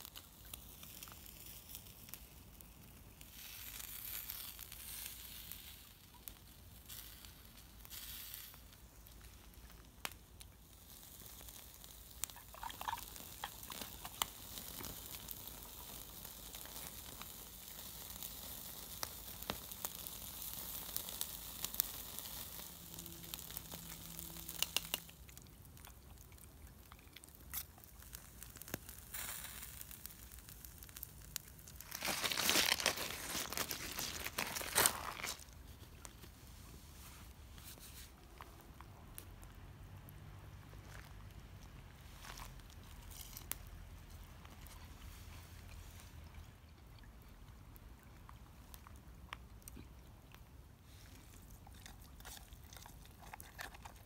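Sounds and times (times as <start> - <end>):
meat sizzling on a grill: 0.0 - 25.8, 27.4 - 35.4
campfire crackling and popping: 0.0 - 54.0
rough rustling noise: 31.5 - 38.6.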